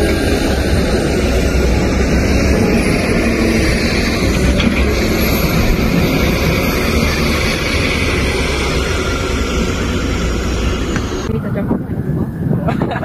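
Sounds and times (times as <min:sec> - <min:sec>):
diesel engine rumbling under load: 0:00.0 - 0:13.0.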